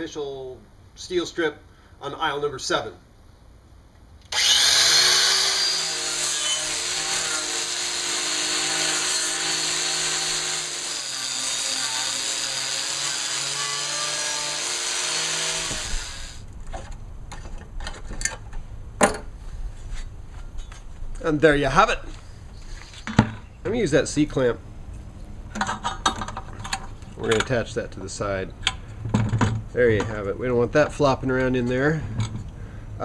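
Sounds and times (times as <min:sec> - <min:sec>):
angle grinder wire wheel running: 0:04.3 - 0:16.4
knocks and clicks handling metal: 0:25.5 - 0:27.6, 0:28.6 - 0:30.2.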